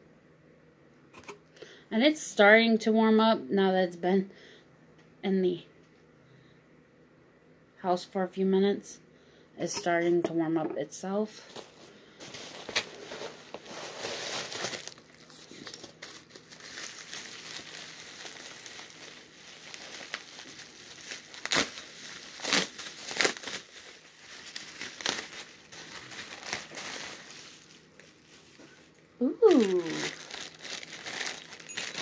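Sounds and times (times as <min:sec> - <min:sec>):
bubble wrap crinkling: 0:11.4 - 0:32.0
sharp crackles: 0:14.3 - 0:27.2.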